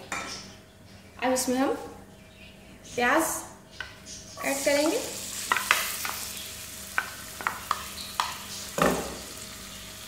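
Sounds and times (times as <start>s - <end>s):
onion sizzling in oil: 4.4s - 10.0s.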